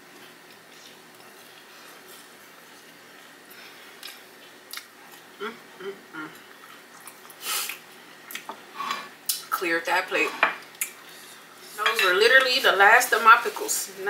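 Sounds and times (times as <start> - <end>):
soft chewing with wet clicks: 0.1 - 5.4, 6.3 - 8.6, 10.6 - 11.0.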